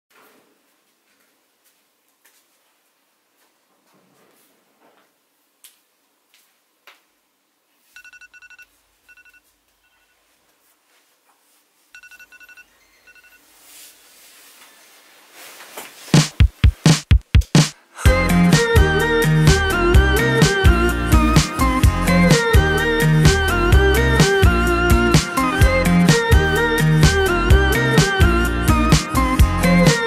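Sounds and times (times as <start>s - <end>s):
music with heavy drum hits: 16.2s - 17.7s.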